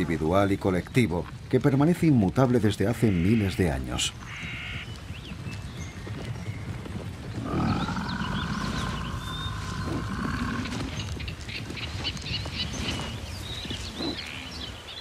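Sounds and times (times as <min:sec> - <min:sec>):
low forest ambience: 0:00.0 - 0:15.0
bison calling: 0:07.4 - 0:11.0.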